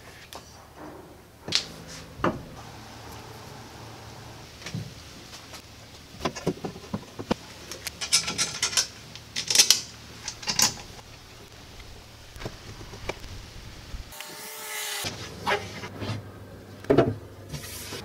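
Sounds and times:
metal frame parts knocking: 1.6 - 2.6, 8.0 - 11.0.

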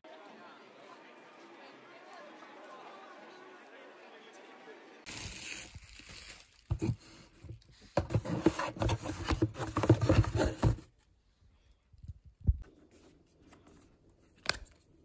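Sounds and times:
cardboard cartons rustling and tapping: 7.9 - 10.9.

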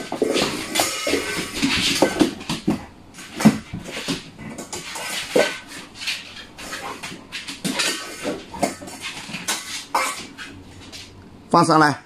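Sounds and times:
metal dog bowl clanking: 0.0 - 10.6.

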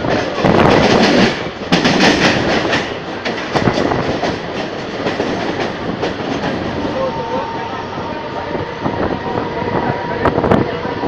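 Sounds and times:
wheels clattering over rail joints: 0.0 - 7.1
train rushing at speed: 0.0 - 11.0.

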